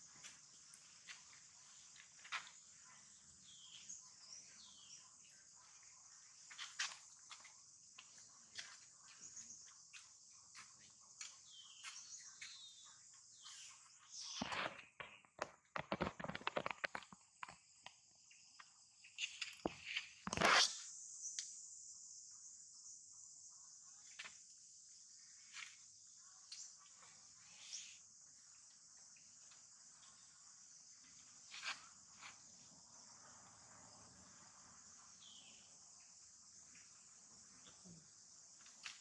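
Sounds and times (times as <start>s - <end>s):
sharp clicks and rustles: 14.4s - 17.9s.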